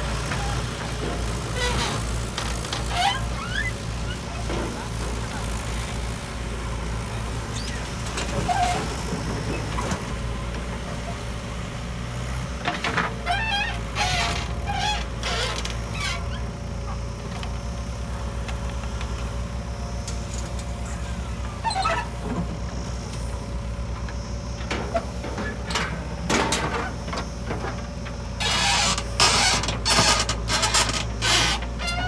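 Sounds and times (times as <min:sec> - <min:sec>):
diesel engine running: 0:00.0 - 0:32.0
metal clanks and scrapes: 0:24.6 - 0:32.0.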